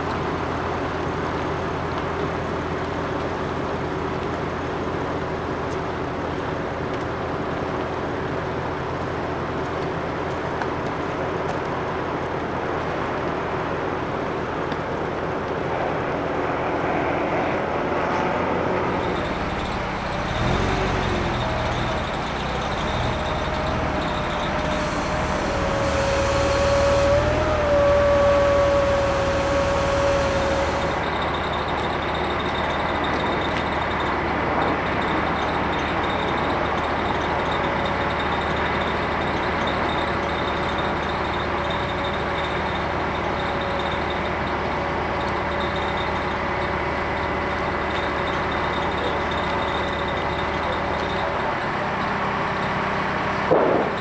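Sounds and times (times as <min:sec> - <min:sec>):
truck engines running: 0:00.0 - 0:54.0
steady whine: 0:18.8 - 0:35.2.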